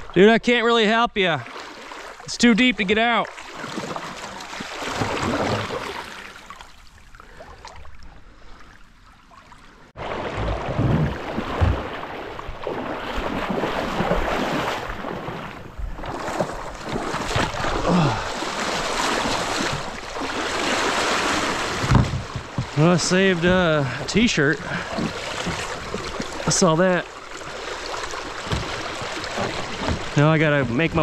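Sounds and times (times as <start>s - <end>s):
river current rushing: 16.1s - 22.0s.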